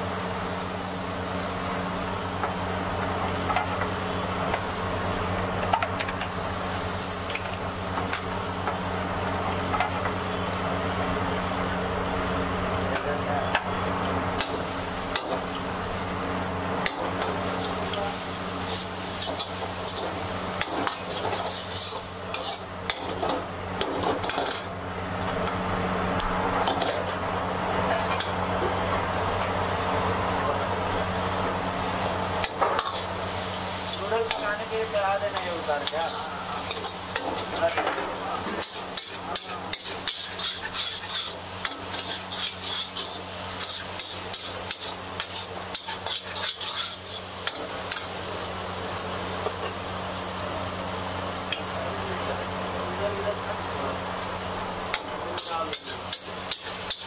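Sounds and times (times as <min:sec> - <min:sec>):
noodles sizzling in wok: 0:00.0 - 0:57.0
ladle scraping and clicking on wok: 0:35.3 - 0:48.1, 0:54.9 - 0:57.0.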